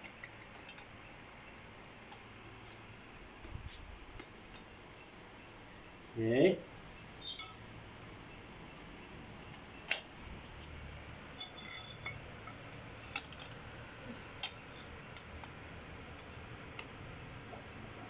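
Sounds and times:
metal tubes clinking and knocking: 0:07.2 - 0:07.6, 0:11.4 - 0:13.6.

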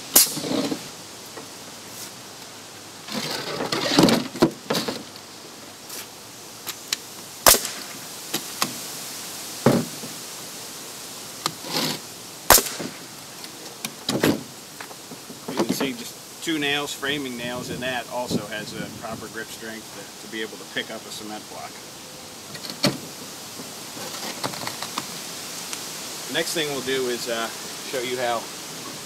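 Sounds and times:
handling knocks and rustles: 0:03.1 - 0:05.3, 0:12.6 - 0:16.1, 0:22.5 - 0:25.1
nail gun firing: 0:12.5 - 0:13.0.

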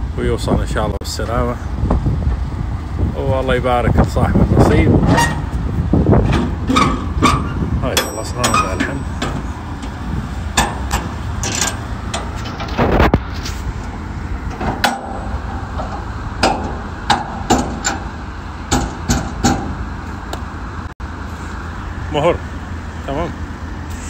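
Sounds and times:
steady low rumble: 0:00.0 - 0:23.9
metal door clanks and knocks: 0:06.2 - 0:12.8, 0:14.5 - 0:18.1, 0:18.7 - 0:19.9.

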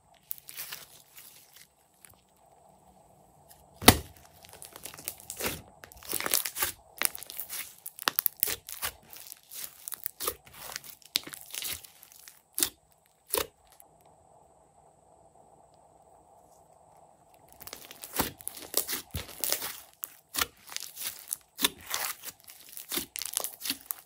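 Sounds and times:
slime crackling and popping: 0:00.2 - 0:02.2, 0:03.8 - 0:13.8, 0:17.3 - 0:24.0.

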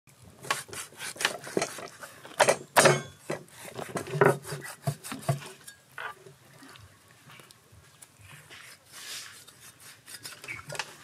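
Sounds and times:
cleaver slicing scrapes: 0:00.4 - 0:02.1, 0:03.6 - 0:05.7, 0:08.3 - 0:11.0.

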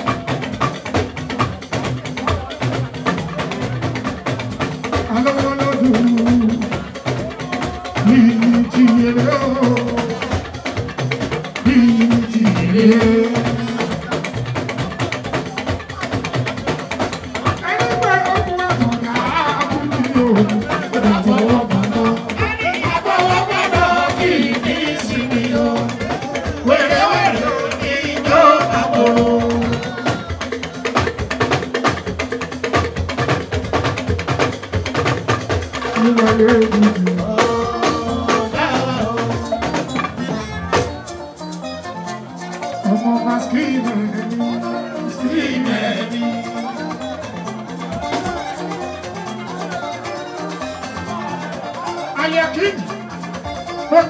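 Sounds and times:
drums and percussion beat: 0:00.0 - 0:54.0
man singing into a microphone: 0:05.0 - 0:06.9, 0:07.6 - 0:10.6, 0:11.6 - 0:14.1, 0:17.7 - 0:30.7, 0:35.9 - 0:40.5, 0:42.8 - 0:46.8.

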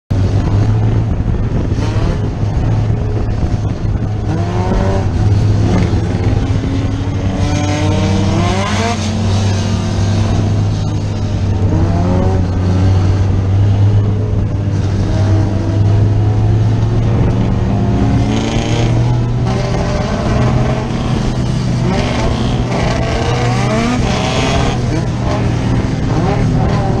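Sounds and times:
race car engine revving: 0:00.1 - 0:27.0.

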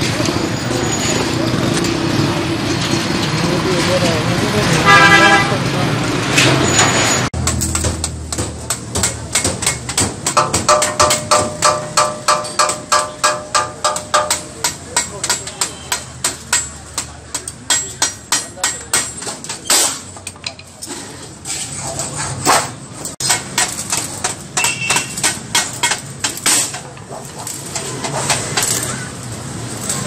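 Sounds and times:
sharp metal strikes: 0:07.4 - 0:20.1.

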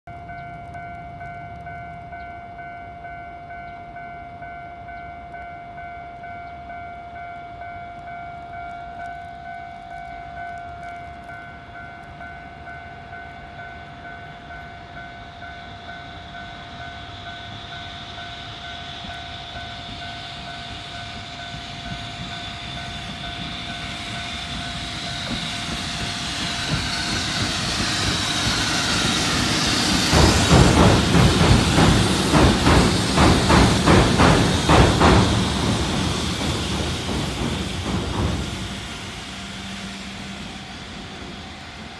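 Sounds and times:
level-crossing alarm bell: 0:00.1 - 0:34.6
train rail hiss: 0:08.4 - 0:41.9
train wheels clattering over rail joints: 0:19.0 - 0:41.9.

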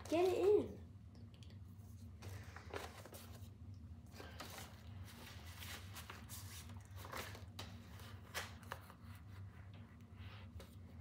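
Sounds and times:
low steady hum: 0:00.0 - 0:11.0
paper and cardboard rustling: 0:02.2 - 0:11.0.

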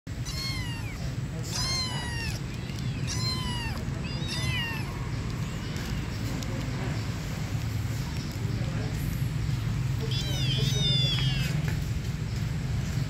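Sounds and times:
kittens meowing: 0:00.1 - 0:06.3, 0:09.9 - 0:11.8.

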